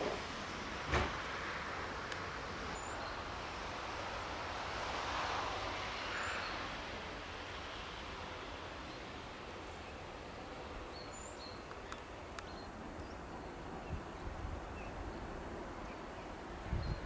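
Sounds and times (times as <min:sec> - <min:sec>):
faint clicks: 0:11.6 - 0:13.1.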